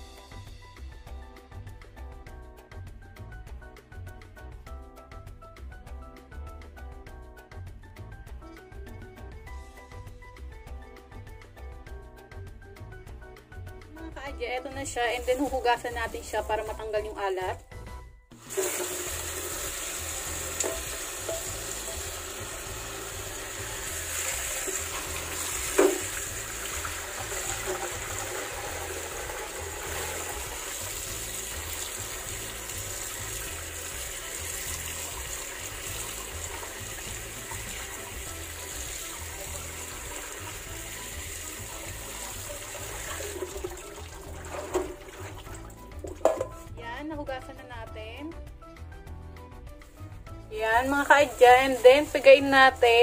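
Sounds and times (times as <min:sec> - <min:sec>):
tap water running into sink: 0:15.0 - 0:16.8, 0:18.3 - 0:46.7, 0:50.6 - 0:53.0.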